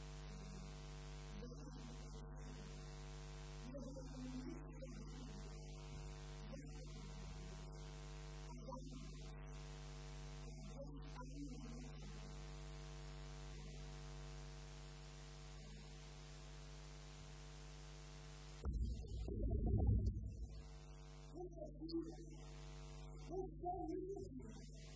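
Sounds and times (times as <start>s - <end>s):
electrical mains hum: 0.0s - 24.9s
woman speaking faintly: 3.6s - 9.5s, 10.4s - 12.6s, 15.5s - 16.1s, 21.3s - 24.9s.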